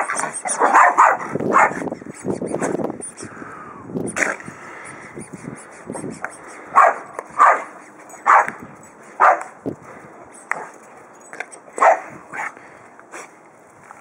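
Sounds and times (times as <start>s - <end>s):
small dog barking: 0.5s - 1.8s, 6.8s - 8.6s, 9.2s - 9.5s, 11.8s - 12.5s.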